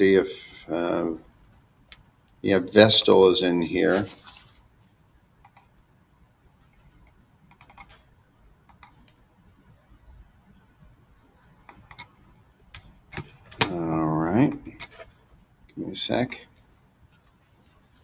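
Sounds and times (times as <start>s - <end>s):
mouse and keyboard clicking: 7.5s - 8.0s, 8.7s - 9.2s, 11.6s - 12.1s.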